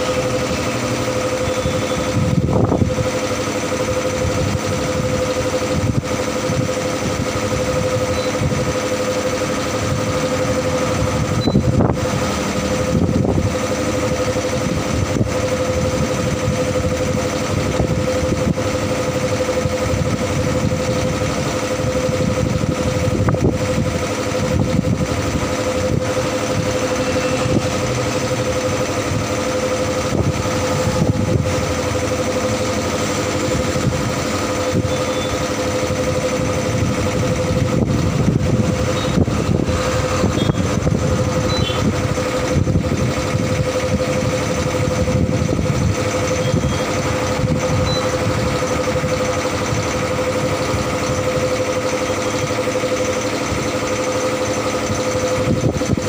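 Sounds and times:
air compressor humming: 0.0s - 56.0s.

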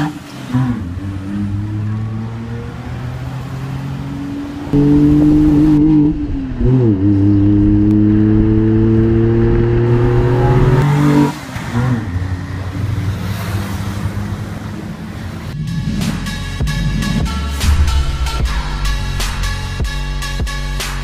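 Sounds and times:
car exhaust accelerating hard: 4.7s - 11.3s.

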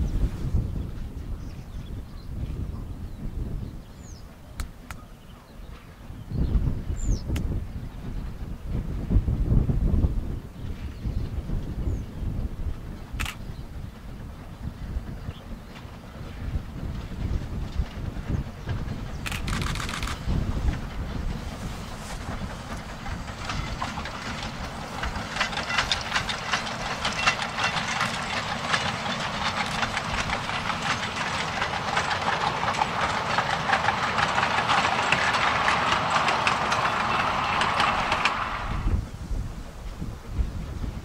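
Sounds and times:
train wheels clattering: 14.0s - 39.0s.

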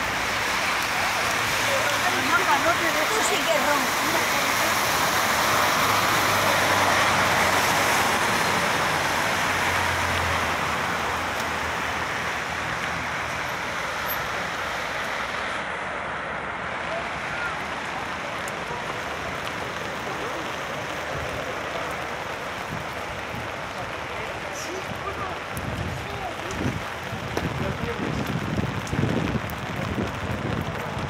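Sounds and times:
tyre hiss on wet asphalt: 0.0s - 16.2s
rain and traffic hiss: 0.0s - 31.0s.

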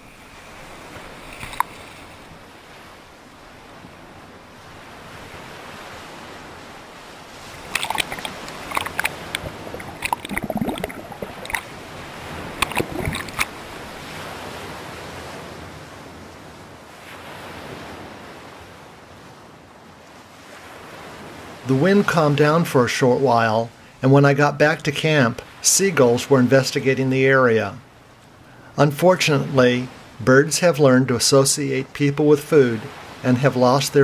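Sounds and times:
ocean surf: 0.0s - 34.0s
swimmer's strokes splashing: 7.3s - 14.0s.

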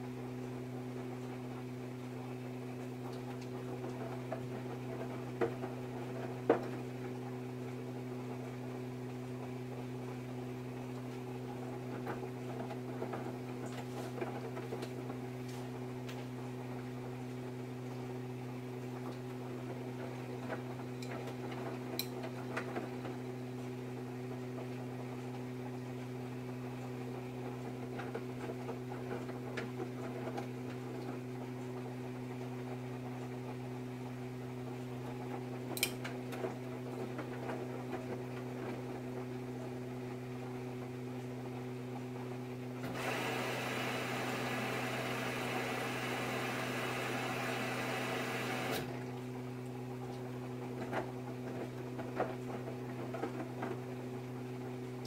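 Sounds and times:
washing machine drum humming: 0.0s - 55.0s.

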